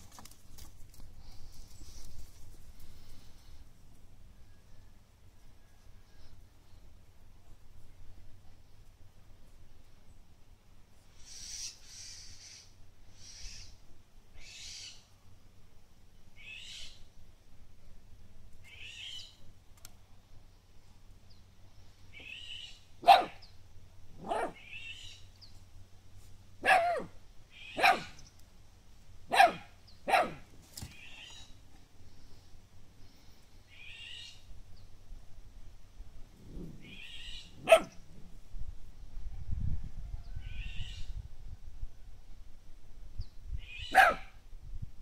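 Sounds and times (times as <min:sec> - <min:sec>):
puppy barking: 0:23.0 - 0:23.4, 0:24.2 - 0:24.7, 0:26.6 - 0:28.2, 0:29.3 - 0:30.5, 0:37.6 - 0:38.0, 0:43.9 - 0:44.4.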